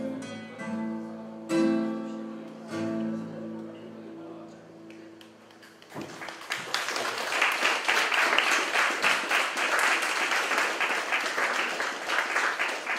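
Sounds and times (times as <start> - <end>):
audience applause: 5.4 - 12.9.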